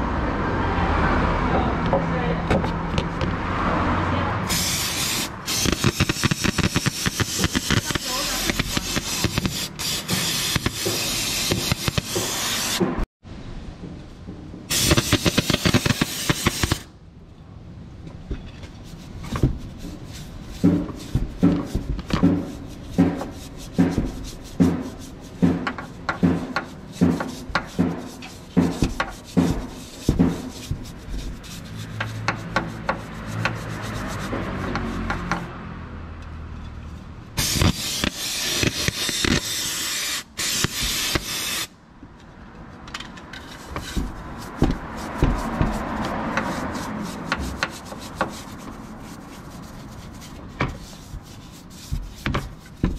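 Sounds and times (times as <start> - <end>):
loud hiss: 4.4 - 12.8, 14.7 - 16.9, 37.4 - 41.8
brush scrubbing engine casing: 4.4 - 13.0, 18.7 - 35.8, 42.6 - 52.9.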